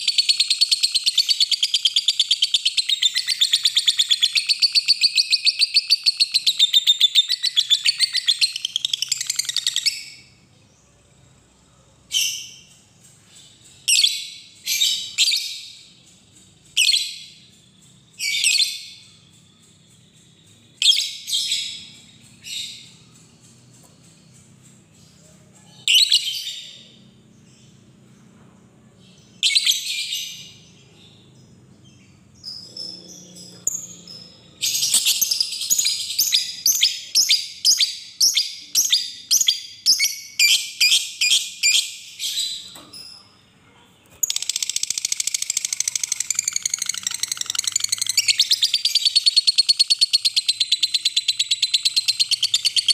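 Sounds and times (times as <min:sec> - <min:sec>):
lovebird chattering calls: 0:44.2 - 0:52.9.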